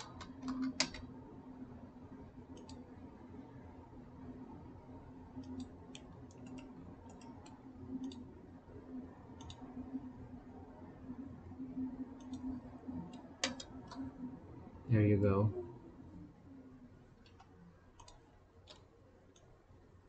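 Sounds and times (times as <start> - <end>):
computer mouse clicks: 0.0 - 1.1, 2.5 - 2.9, 5.4 - 8.3, 9.4 - 9.9, 12.2 - 14.1, 17.2 - 19.5
low steady hum: 0.0 - 20.0.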